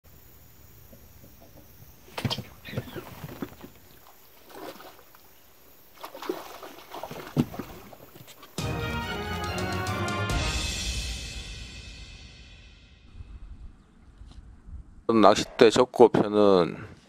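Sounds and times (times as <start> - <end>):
water splashing and sloshing: 2.0 - 8.6.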